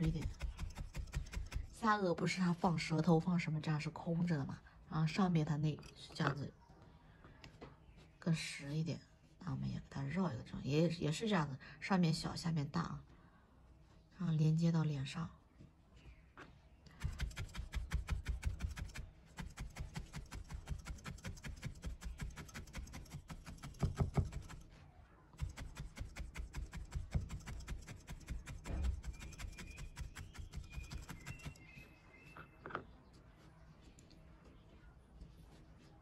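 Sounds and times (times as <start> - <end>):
felting needle poking foam pad: 0.0 - 1.8, 16.9 - 24.7, 25.4 - 31.8.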